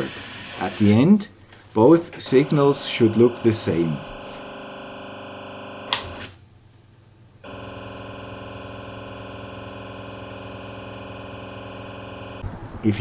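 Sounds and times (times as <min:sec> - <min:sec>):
buzzy radio tone: 0:02.3 - 0:04.4.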